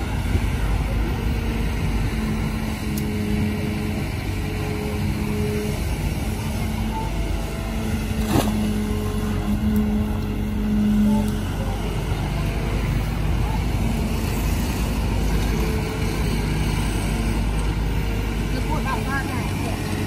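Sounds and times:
excavator diesel engine under load: 0.0 - 20.0
bucket digging wet mud: 8.1 - 8.9.

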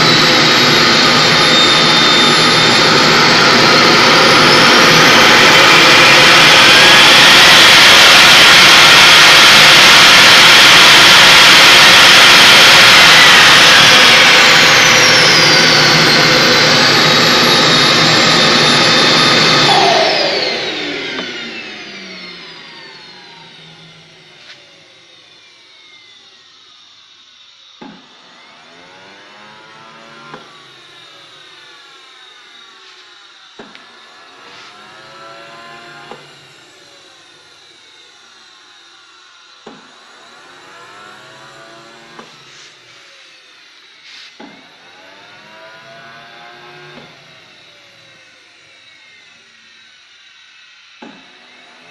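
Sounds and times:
jet turbine spooling down: 0.0 - 51.9.

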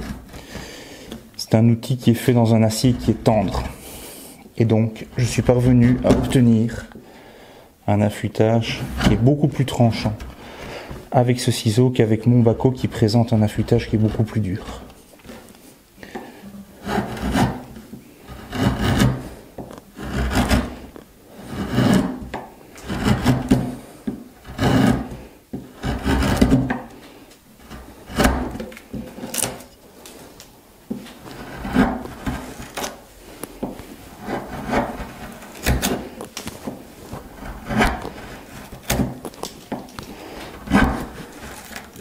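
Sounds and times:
chisel paring wood: 5.2 - 6.5, 16.1 - 27.0, 27.6 - 29.7, 30.9 - 42.0.

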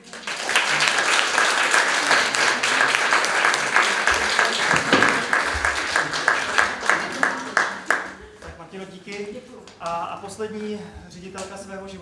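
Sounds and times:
audience applauding: 0.0 - 8.5.

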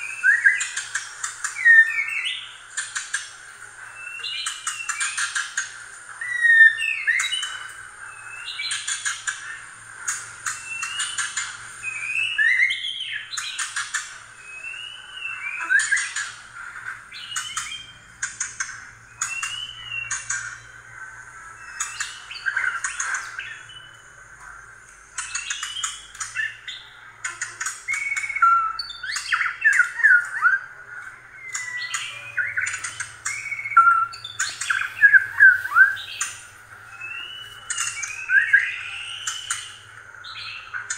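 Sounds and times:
mice squeaking: 4.0 - 24.1, 25.1 - 40.9
steady hiss: 32.6 - 40.9.

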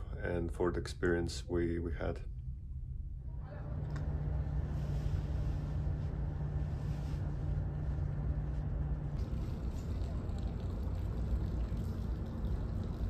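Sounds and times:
boat engine humming: 3.2 - 13.0
water wash: 4.1 - 13.0.

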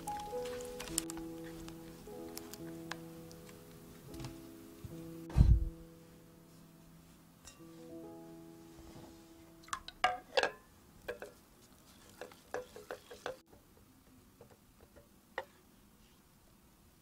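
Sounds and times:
whisk tapping and scraping glass bowl: 10.4 - 13.4.

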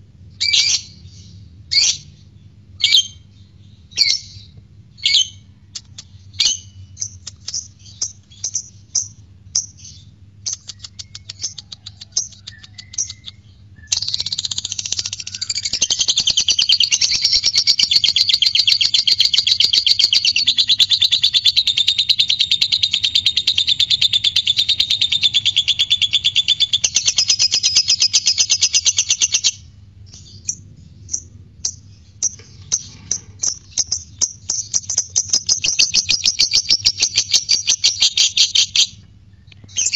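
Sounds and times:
lovebird chirps: 3.9 - 39.9
lovebird rapid chatter: 7.0 - 29.6, 31.7 - 38.9.

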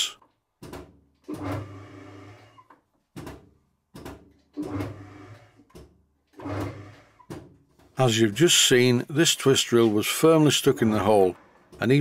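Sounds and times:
lathe motor clunking and humming: 4.6 - 5.2.

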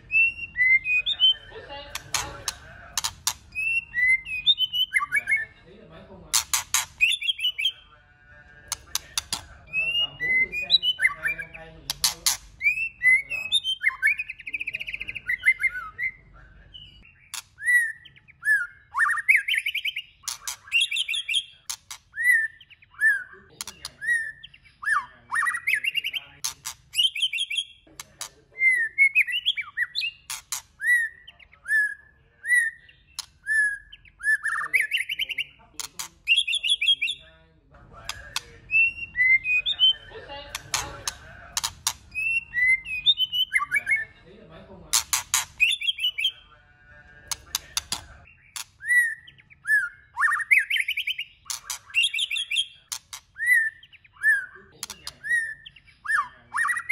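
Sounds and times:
bird singing whistled phrases: 0.0 - 1.5, 3.5 - 5.6, 7.0 - 7.8, 9.7 - 11.6, 12.6 - 16.2, 16.8 - 26.2, 28.5 - 30.2, 30.8 - 35.5, 36.3 - 37.2, 38.7 - 40.1, 42.1 - 44.1, 45.6 - 46.4, 48.8 - 56.9
bird clicking notes: 1.9 - 3.6, 6.4 - 7.2, 8.7 - 9.5, 11.9 - 12.6, 40.5 - 42.2, 47.3 - 48.7.

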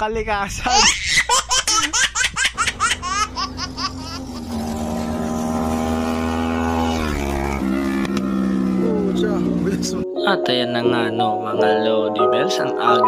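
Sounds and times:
laughter: 0.7 - 4.3
motorcycle riding past: 2.8 - 10.0.

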